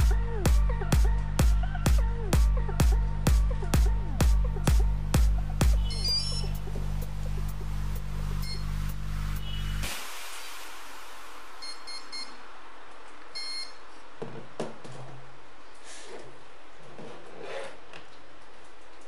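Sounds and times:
short electronic beeps: 5.8 - 6.6, 11.6 - 12.4, 13.4 - 13.8
faint hiss: 7.8 - 14.0.

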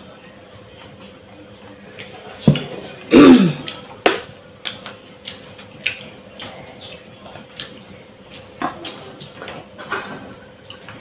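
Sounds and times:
chewing smacks: 3.6 - 11.0.

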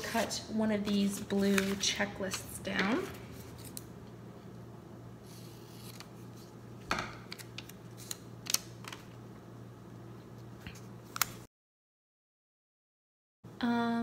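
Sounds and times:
paper rustling: 0.0 - 3.8, 5.3 - 6.5, 7.2 - 9.0.

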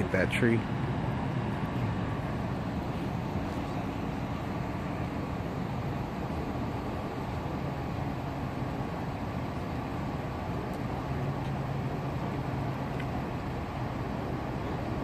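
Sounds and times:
engine idling: 0.0 - 15.0
low even hum: 0.0 - 15.0
traffic running: 0.0 - 15.0.

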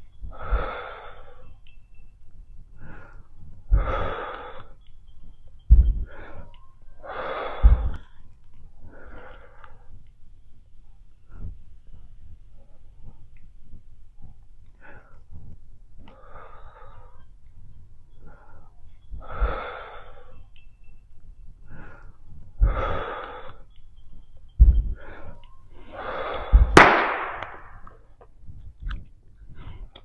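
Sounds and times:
heavy breathing exhales: 0.3 - 1.5, 2.8 - 4.8, 5.9 - 8.0, 18.2 - 20.4, 21.6 - 23.7, 24.8 - 27.8
low thump: 5.7 - 6.0.

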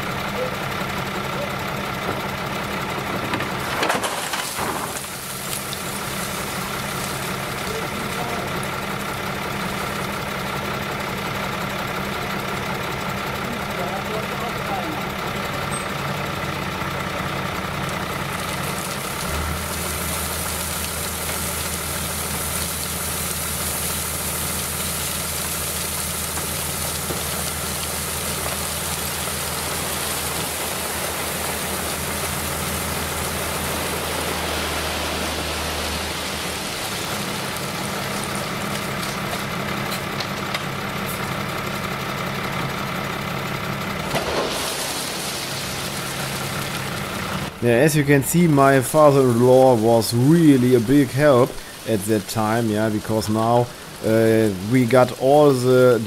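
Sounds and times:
hydraulic trailer bed raising: 0.0 - 8.7, 15.1 - 47.6
tractor engine running: 0.0 - 56.0
gravel sliding off: 2.7 - 10.1, 16.8 - 41.3, 42.5 - 56.0.

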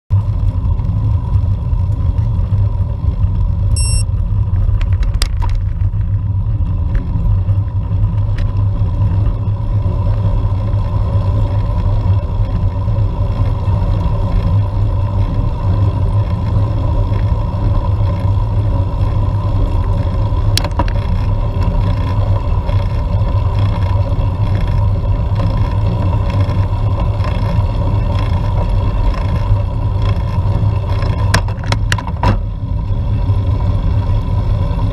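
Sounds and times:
road and wind rumble: 0.1 - 34.9
brief high beep: 3.8 - 4.1.

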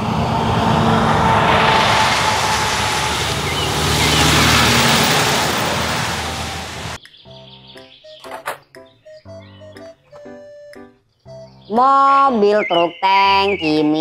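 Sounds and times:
truck engine hum: 0.0 - 7.0.

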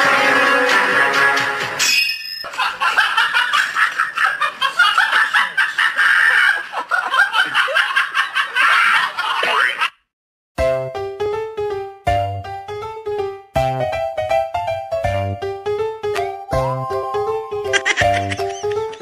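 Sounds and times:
people laughing: 2.5 - 9.9, 17.8 - 19.0.

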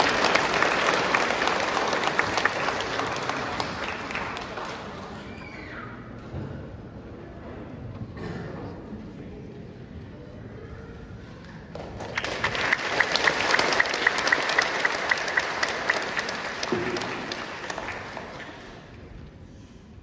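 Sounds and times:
crowd applauding: 0.0 - 5.6, 12.0 - 19.0
single person clapping sharply: 11.8 - 18.6.

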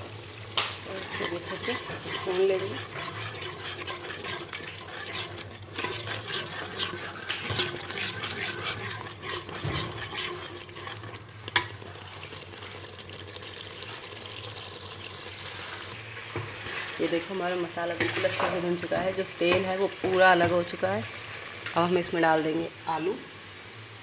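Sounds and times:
food frying in oil: 0.0 - 24.0
spoon scraping metal pot: 0.9 - 12.7.

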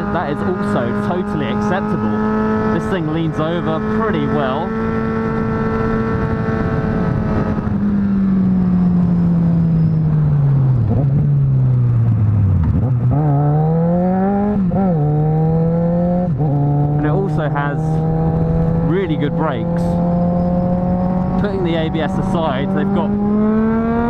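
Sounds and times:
motorcycle engine revving: 0.0 - 24.0
wind rushing past microphone: 5.0 - 8.2.

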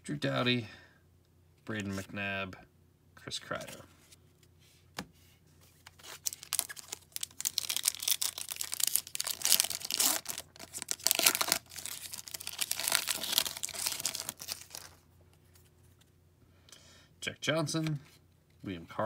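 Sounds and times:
foil wrapper tearing and crinkling: 5.9 - 15.0.

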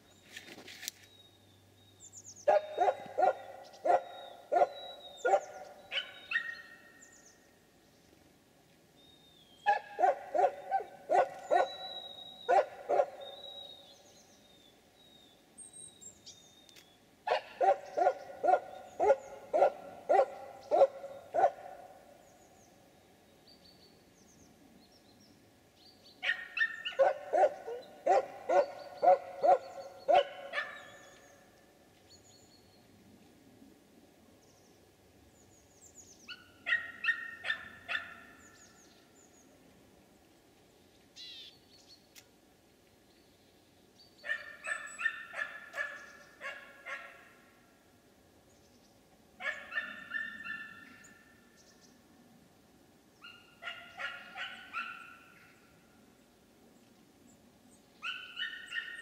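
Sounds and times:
small birds calling: 0.0 - 8.1, 9.0 - 22.8, 23.5 - 32.9, 40.6 - 42.3, 57.7 - 59.0.

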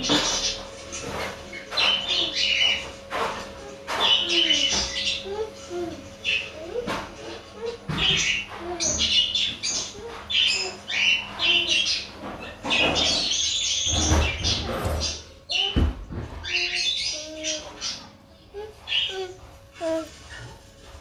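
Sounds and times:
budgerigars chattering: 0.0 - 3.3, 3.9 - 5.4, 6.2 - 15.2.

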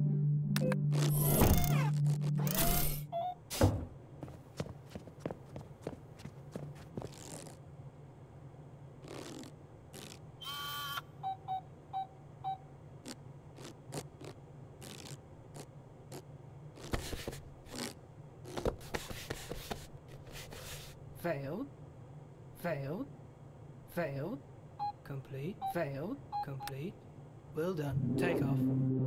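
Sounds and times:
low steady hum: 0.0 - 19.1, 19.7 - 29.0.

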